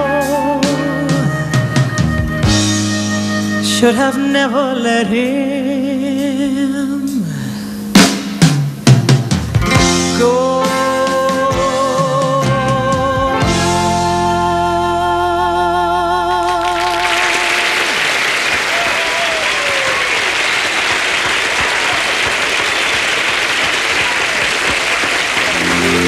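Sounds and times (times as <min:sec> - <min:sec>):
band playing a ballad: 0:00.0 - 0:17.4, 0:25.4 - 0:26.0
audience applause: 0:16.5 - 0:26.0.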